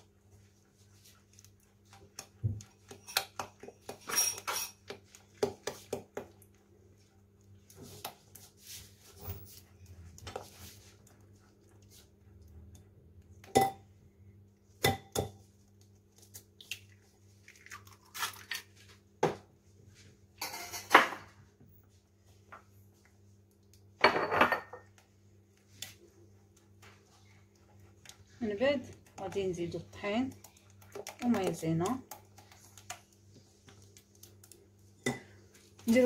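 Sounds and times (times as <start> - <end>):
spatula scraping batter in glass bowl: 1.9 - 6.2, 26.8 - 33.9
egg cracking: 15.8 - 18.8, 24.9 - 35.1.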